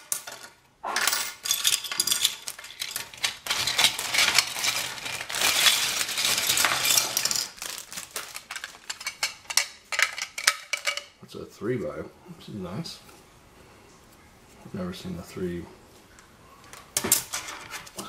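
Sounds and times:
plastic parts clattering: 0.0 - 11.2, 16.7 - 18.0
plastic bag crinkling: 1.4 - 10.9.

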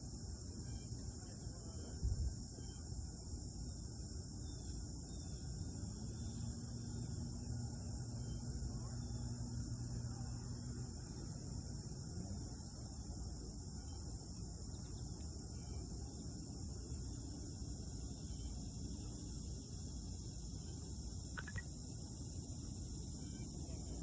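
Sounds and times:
high-pitched insect chorus: 0.0 - 24.0
brief chirp: 21.4 - 21.7.

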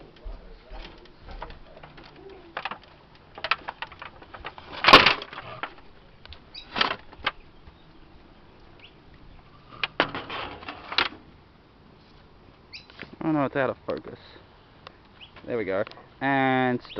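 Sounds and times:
footsteps: 0.0 - 6.4
handling knocks and rustles: 0.0 - 7.8, 9.7 - 11.3.

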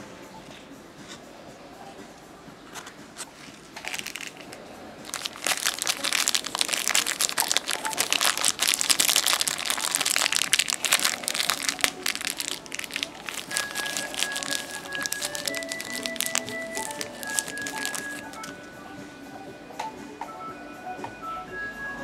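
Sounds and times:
wrapper crackling and crumpling: 3.7 - 18.6.

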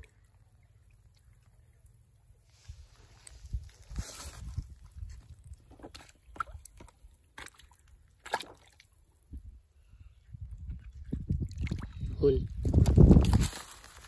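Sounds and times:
water sloshing and dripping: 4.8 - 9.4, 10.6 - 12.1
small splashes: 5.4 - 9.0, 11.3 - 12.1.

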